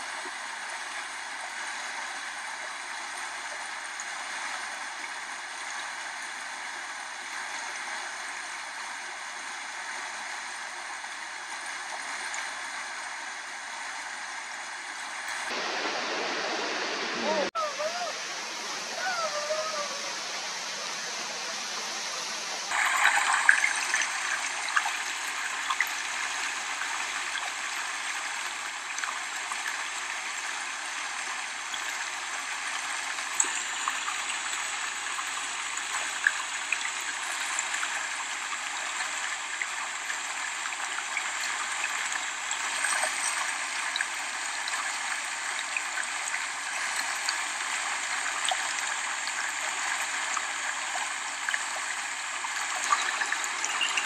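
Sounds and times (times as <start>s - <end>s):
stream water flowing: 0.0s - 54.0s.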